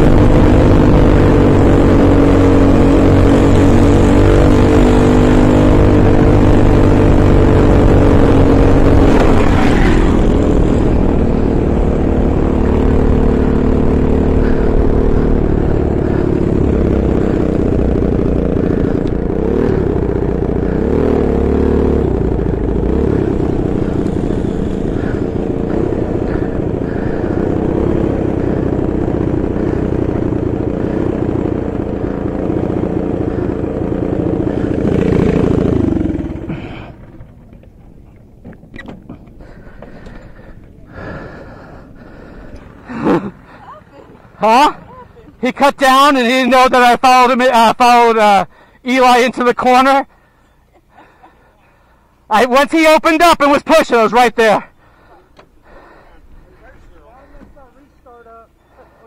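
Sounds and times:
go-kart engine running: 0.0 - 59.0.

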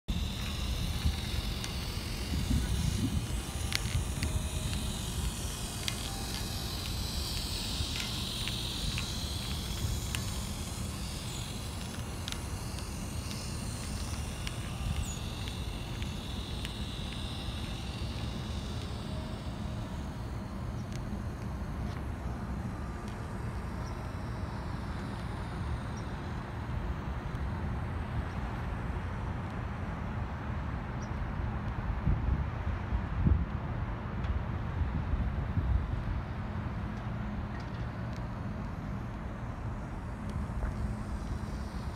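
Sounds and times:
sharp clicks: 0.1 - 26.5
toy train motor whirring: 0.1 - 29.8, 36.5 - 41.9
steady low rumble: 0.1 - 41.9.

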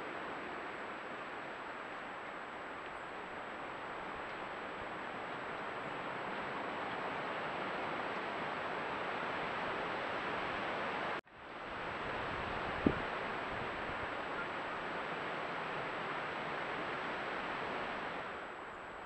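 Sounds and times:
wind through trees: 0.0 - 19.0.

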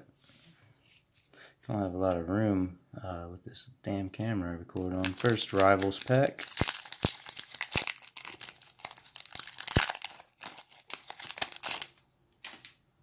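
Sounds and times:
foil wrapper tearing and crinkling: 4.8 - 12.7.

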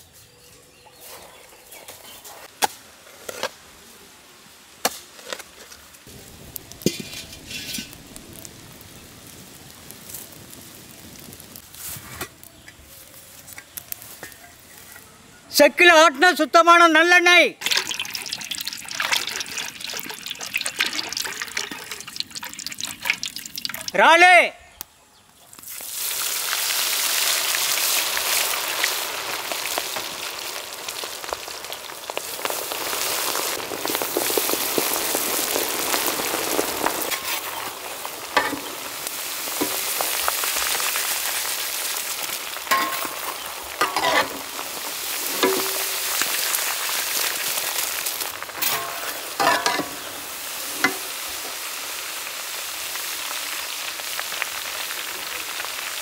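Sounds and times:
prawns sizzling in oil: 4.3 - 15.1, 17.6 - 24.2, 25.5 - 56.0
utensil clinking and scraping: 6.9 - 8.0, 38.4 - 38.8, 42.7 - 44.5, 45.2 - 46.3, 48.6 - 51.1.

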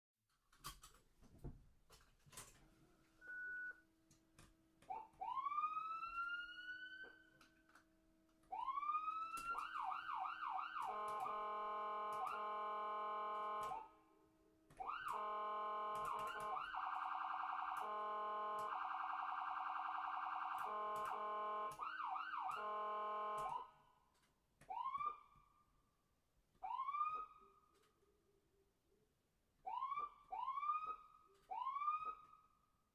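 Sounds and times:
ambulance siren: 4.9 - 7.5, 8.5 - 14.0, 14.8 - 23.8, 24.7 - 25.4, 26.6 - 27.6, 29.7 - 32.4.

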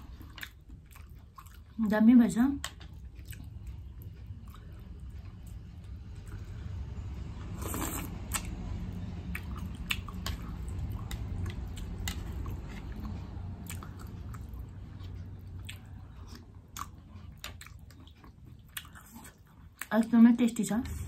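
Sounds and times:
wet chewing and mouth smacks: 0.0 - 1.8, 2.6 - 6.5, 9.2 - 20.0
low steady hum: 0.0 - 21.0
person slurping noodles: 7.6 - 8.4.

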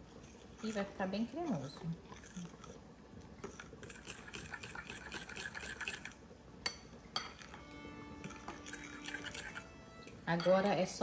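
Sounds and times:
utensil clinking and scraping glass: 8.2 - 10.8.

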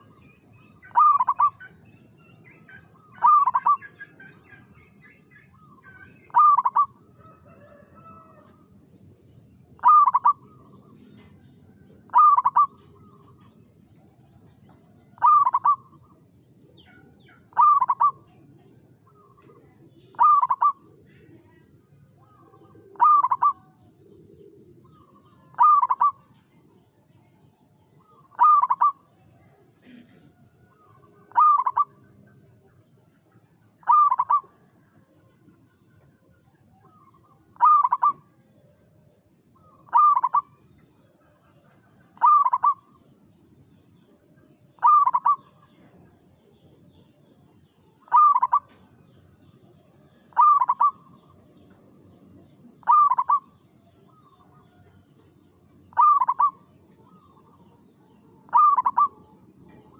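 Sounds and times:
dove cooing: 0.0 - 8.5, 9.5 - 11.5, 12.1 - 16.2, 16.8 - 26.4, 28.1 - 29.1, 29.8 - 32.1, 33.7 - 35.2, 36.7 - 38.9, 39.6 - 43.0, 44.7 - 46.0, 48.0 - 49.0, 50.2 - 51.4, 52.7 - 55.3, 55.9 - 57.6, 58.4 - 59.9
small birds chirping: 0.0 - 59.9.

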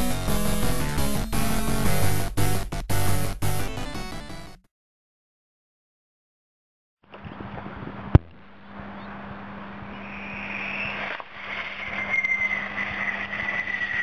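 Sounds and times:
high whistle: 10.0 - 14.0.

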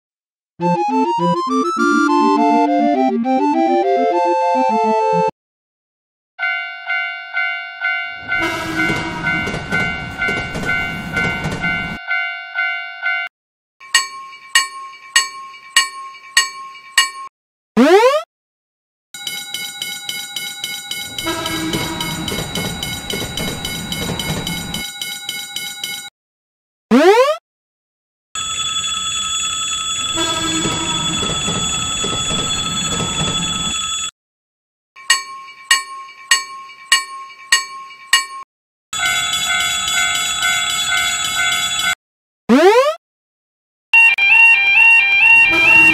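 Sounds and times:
lower crossing bell ringing: 6.4 - 17.3, 19.2 - 26.1, 28.4 - 34.1, 35.0 - 38.4, 39.0 - 42.0
railroad crossing bell ringing: 6.4 - 17.3, 19.2 - 26.1, 28.4 - 34.1, 35.0 - 38.4, 39.0 - 42.0, 44.0 - 45.9
train passing: 8.2 - 12.0, 20.4 - 25.0.

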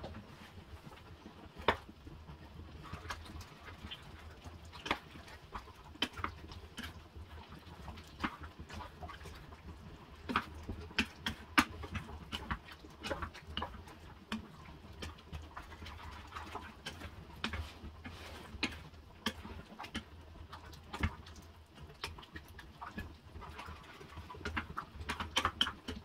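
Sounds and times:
wooden spoon scraping a saucepan: 17.5 - 18.9.

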